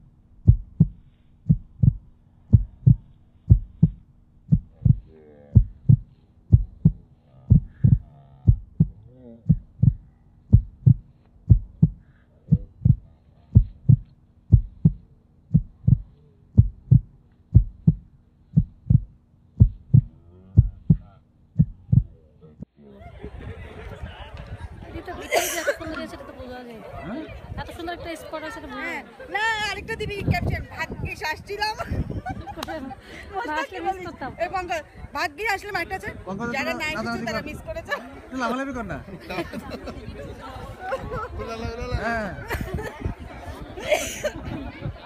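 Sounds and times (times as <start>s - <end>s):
deep thumping beat: 0.4s - 22.7s.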